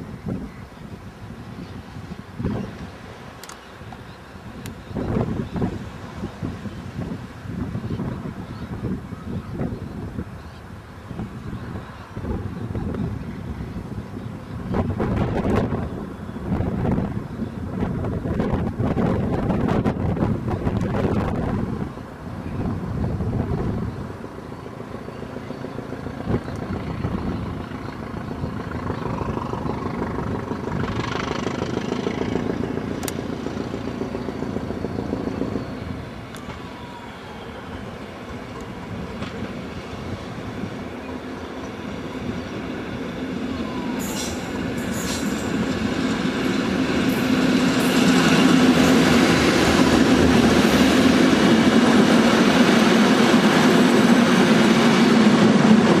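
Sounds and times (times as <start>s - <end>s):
diesel train engine drone: 0.0s - 56.0s
train wheels clicking: 24.2s - 36.6s, 44.0s - 56.0s.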